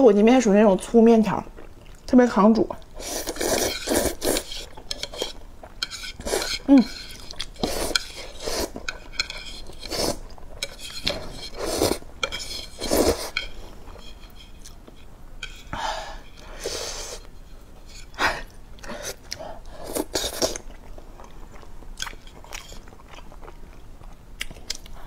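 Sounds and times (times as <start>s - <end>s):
person slurping and chewing noodles: 2.8s - 14.8s, 18.0s - 23.8s.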